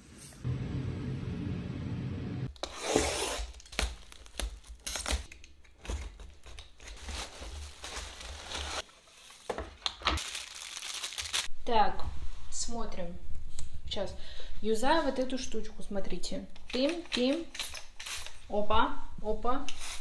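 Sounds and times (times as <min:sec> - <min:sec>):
packaging tearing and crinkling: 0:03.4 - 0:08.8, 0:09.4 - 0:11.5.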